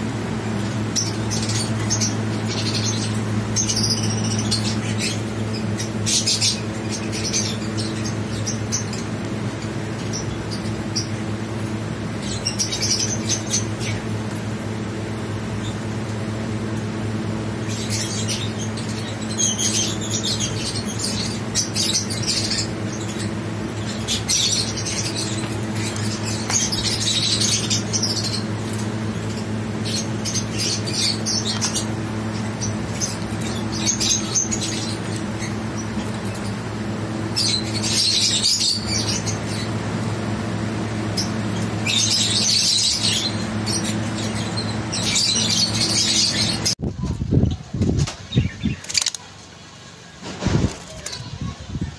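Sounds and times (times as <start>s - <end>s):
steady low hum: 0.0s - 51.9s
bird chirping: 0.6s - 11.4s, 17.6s - 46.8s.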